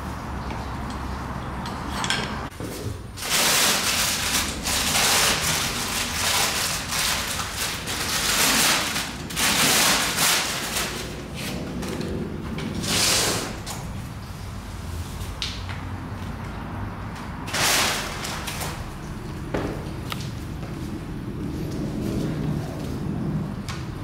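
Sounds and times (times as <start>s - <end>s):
plastic wrap rustling and crinkling: 3.2s - 11.7s.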